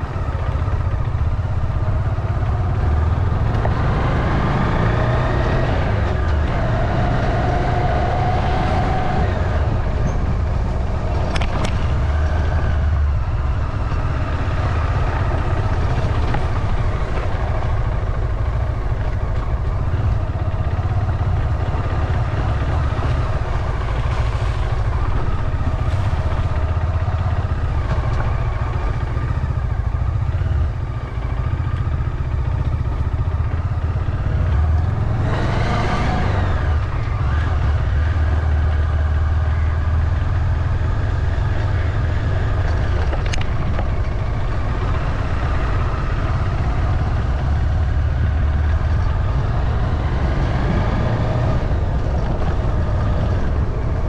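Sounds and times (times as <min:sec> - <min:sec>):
vehicle engine rumbling: 0:00.0 - 0:54.0.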